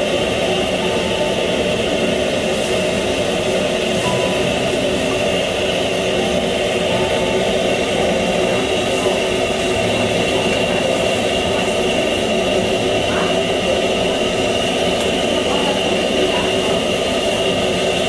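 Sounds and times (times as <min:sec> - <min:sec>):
high whine: 0:00.0 - 0:18.0
kitchen fan humming: 0:00.0 - 0:18.0.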